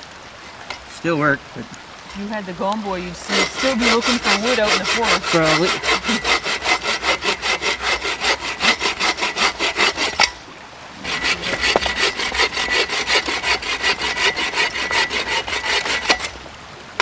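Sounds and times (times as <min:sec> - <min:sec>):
bow saw cutting firewood: 0:03.1 - 0:10.4, 0:11.0 - 0:16.4.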